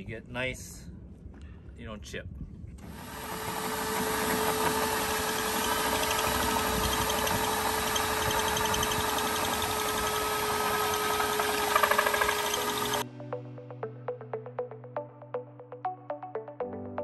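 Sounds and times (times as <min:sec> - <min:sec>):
drill with hole saw cutting: 0:02.8 - 0:13.0
shop vacuum running: 0:02.8 - 0:13.0.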